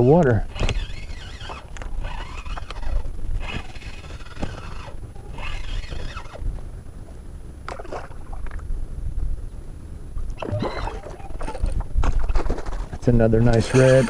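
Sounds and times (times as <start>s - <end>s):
wind buffeting microphone: 0.0s - 14.0s
water lapping at kayak: 7.6s - 8.7s, 10.3s - 12.8s.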